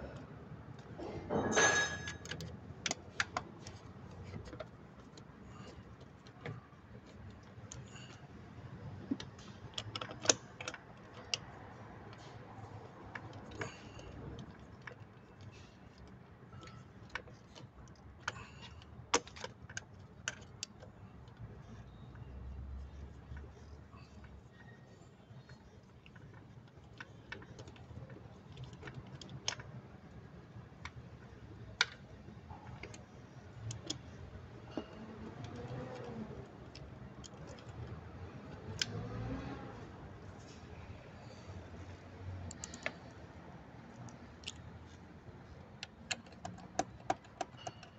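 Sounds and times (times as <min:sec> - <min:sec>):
screwdriver clicking on metal: 0:45.8 - 0:47.9.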